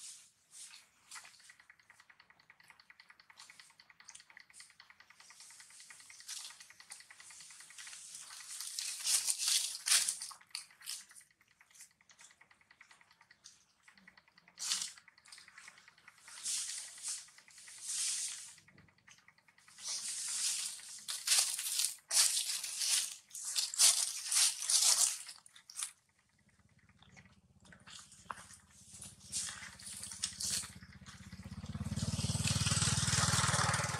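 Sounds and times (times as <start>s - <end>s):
rustling and crinkling of food: 8.6s - 10.5s, 20.6s - 25.9s.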